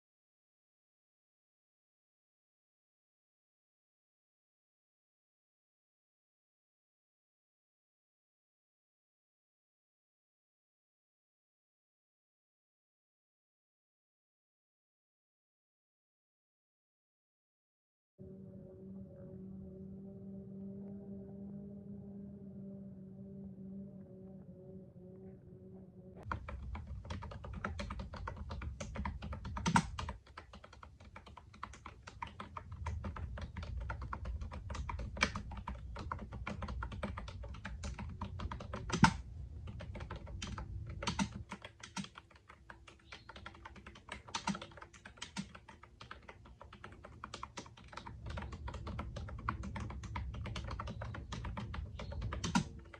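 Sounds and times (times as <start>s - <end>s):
fast typing on keyboard: 26.2s - 52.9s.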